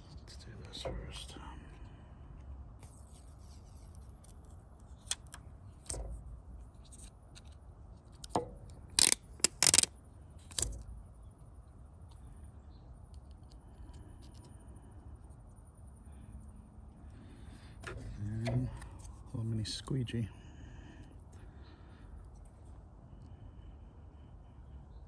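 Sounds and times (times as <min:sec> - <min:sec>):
sharp handling noises: 0:02.8 - 0:10.9.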